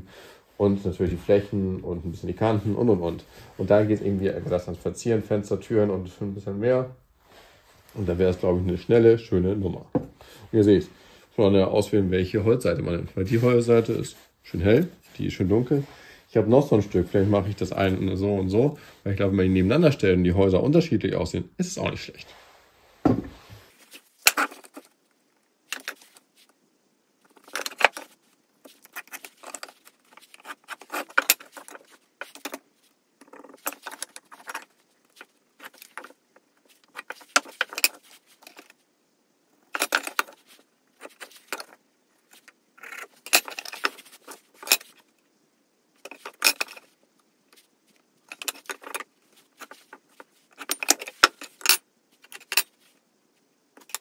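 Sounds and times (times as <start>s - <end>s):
light knocks on wooden workbench: 23.0s - 23.4s
pencil scraping lines: 28.6s - 32.6s.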